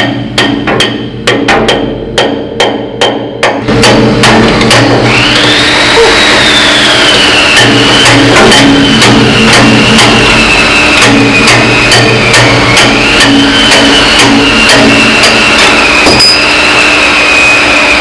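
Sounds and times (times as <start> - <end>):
hammer blows on steel pin: 0.0 - 17.0
engine running: 3.6 - 18.0
high wavering whine: 3.7 - 18.0.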